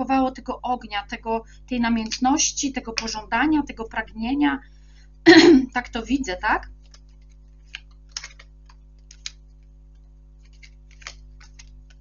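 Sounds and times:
faint steady hum: 0.0 - 12.0
cards clicking and snapping: 6.8 - 12.0.

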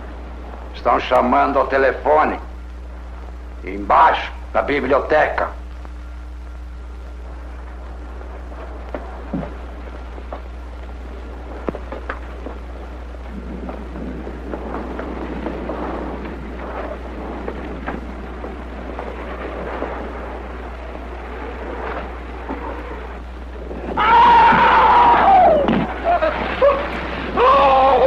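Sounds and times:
film hum and crackle: 0.0 - 28.0
soft rumbling: 0.0 - 28.0
high-pitched scream: 24.0 - 25.9, 26.6 - 28.0.

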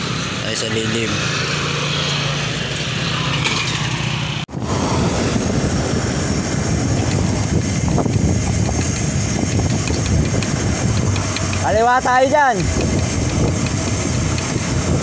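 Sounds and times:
small engine humming: 0.0 - 15.0
wind and road noise on microphone: 0.0 - 15.0.

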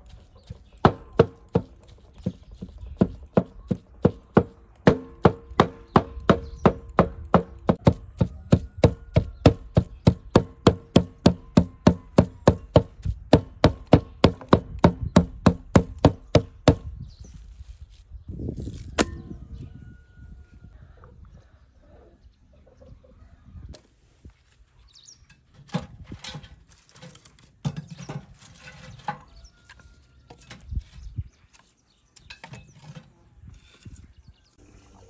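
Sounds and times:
cleaver chopping meat on wood: 0.8 - 16.9.

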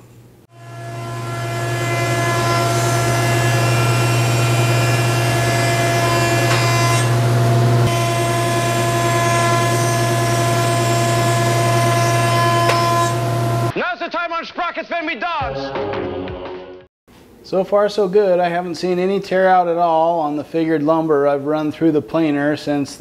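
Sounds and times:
planer humming and whining: 0.5 - 13.7.

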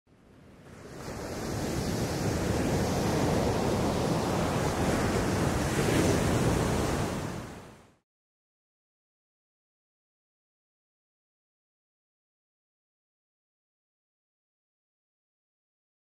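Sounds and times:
rushing ocean surf: 0.2 - 8.0.

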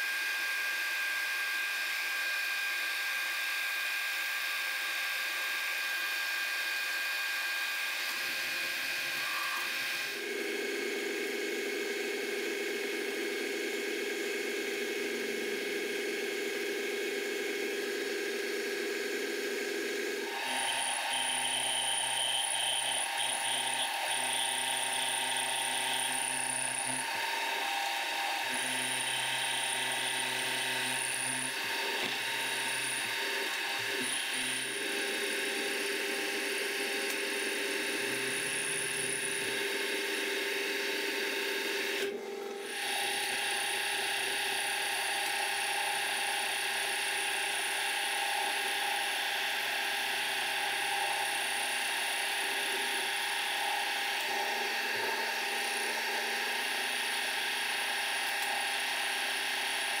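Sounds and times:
drill boring into metal: 3.6 - 10.2, 19.9 - 60.0
milling machine running: 6.0 - 60.0.

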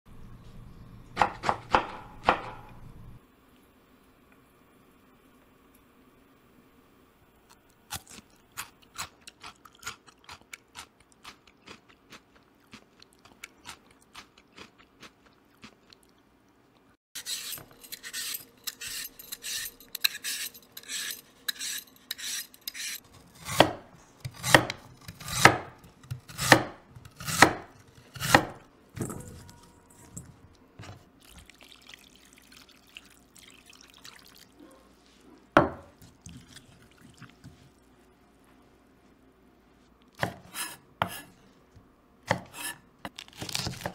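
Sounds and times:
knife chopping on cutting board: 1.2 - 2.7, 23.4 - 28.6, 40.2 - 41.3, 42.3 - 42.8
vegetable peeler scraping: 17.2 - 28.6, 42.3 - 43.9.

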